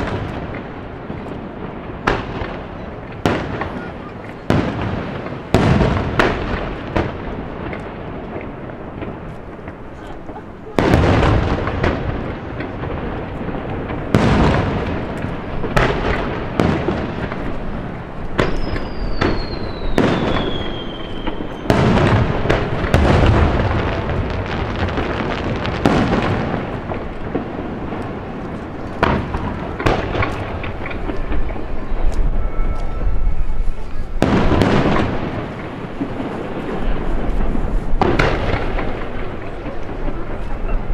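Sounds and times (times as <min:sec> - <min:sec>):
fireworks booming: 0:00.0 - 0:40.9
falling firework whistle: 0:18.3 - 0:23.3, 0:31.1 - 0:35.4.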